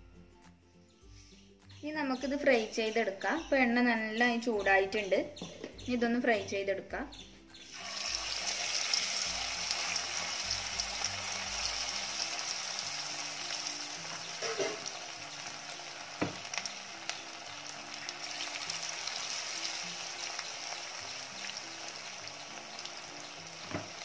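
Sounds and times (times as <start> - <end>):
chicken deep-frying in oil: 7.7 - 24.0.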